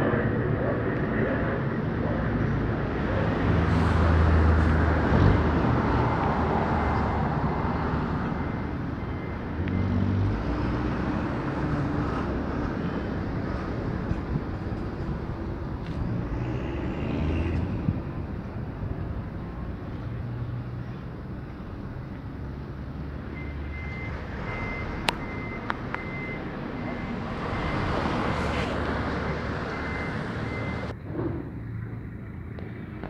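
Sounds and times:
city street traffic rumble: 0.0s - 33.0s
transport planes droning overhead: 0.0s - 33.0s.

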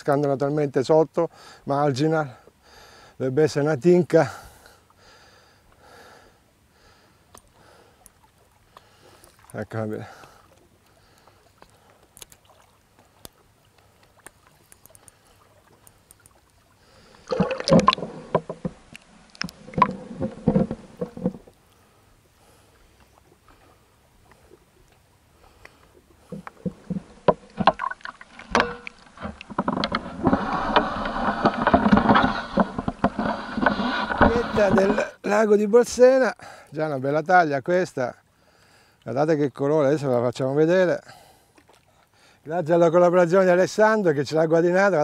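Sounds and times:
fish splashing in water: 10.4s - 21.5s.

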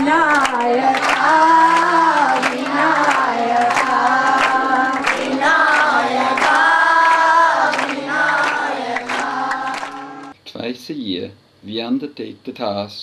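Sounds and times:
children singing along: 0.0s - 10.3s
sharp beats keeping time: 1.3s - 10.3s.

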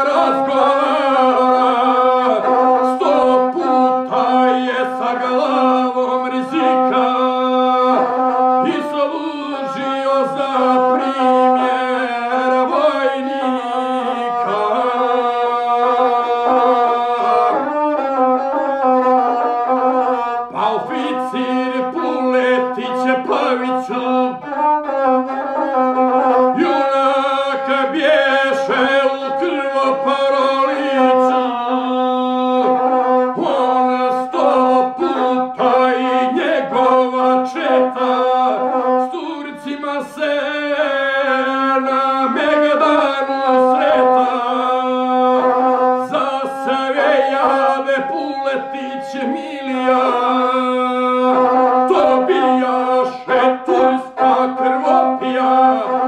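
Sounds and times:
bowed single-string fiddle melody: 0.0s - 56.0s
man chanting: 0.0s - 56.0s.

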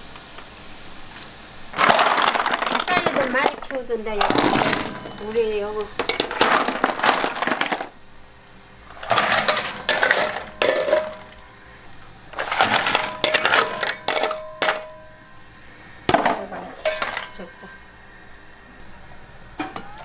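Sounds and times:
snail shells clattering in metal bowl: 1.7s - 8.0s, 8.9s - 11.5s, 12.3s - 15.2s, 16.1s - 17.8s
metal bowl ringing: 4.2s - 6.4s, 8.9s - 11.7s, 12.4s - 17.9s.

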